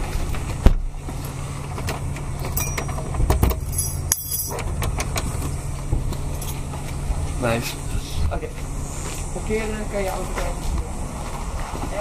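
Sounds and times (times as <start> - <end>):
steady low hum: 0.0 - 12.0
keys jingling in door lock: 2.4 - 4.7.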